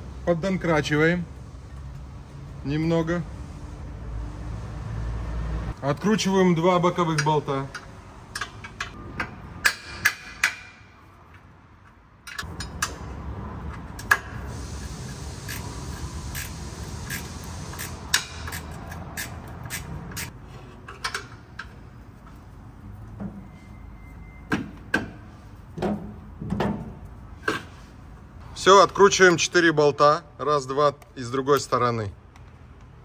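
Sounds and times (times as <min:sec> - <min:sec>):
steady mechanical noise: 0:12.2 - 0:20.4.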